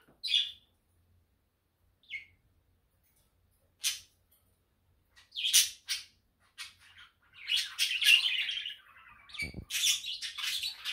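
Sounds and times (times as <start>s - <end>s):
budgerigars chirping and warbling: 0.2s - 0.7s, 2.0s - 2.4s, 3.8s - 4.2s, 5.1s - 10.9s.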